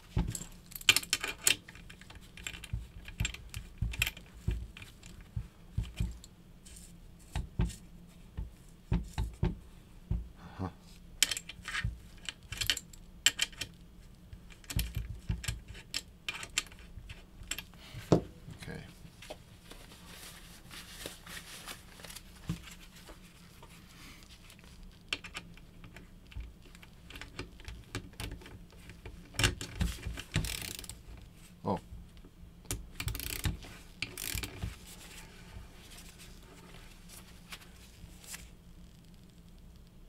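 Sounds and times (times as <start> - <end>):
torque wrench clicks and knocks: 30.3 - 30.9, 32.7 - 34.6.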